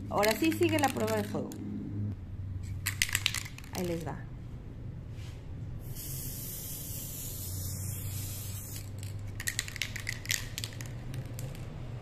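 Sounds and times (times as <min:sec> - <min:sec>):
spray paint can hissing: 0:05.8 - 0:11.6.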